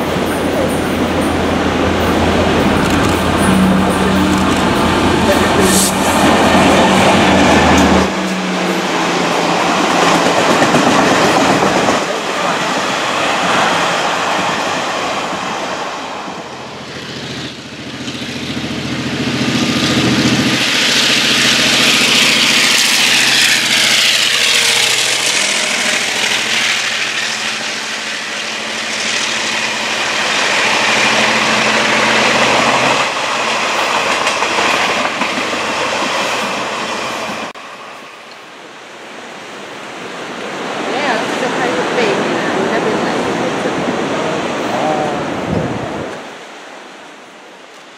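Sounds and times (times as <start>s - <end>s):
train wheels clacking over rails: 0.0s - 37.6s
diesel locomotive engine drone: 0.0s - 47.9s.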